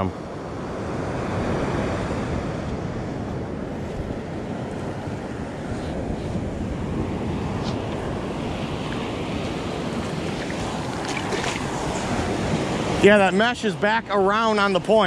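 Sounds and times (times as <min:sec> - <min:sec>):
ocean surf on sand: 0:00.0 - 0:15.0
wind buffeting microphone: 0:00.0 - 0:15.0.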